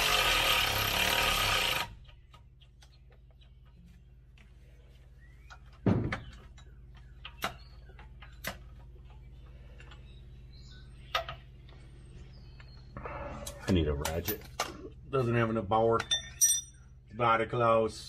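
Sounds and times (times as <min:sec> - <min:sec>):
steady low hum: 0:01.8 - 0:18.0
metal tools knocking on metal: 0:16.0 - 0:16.9.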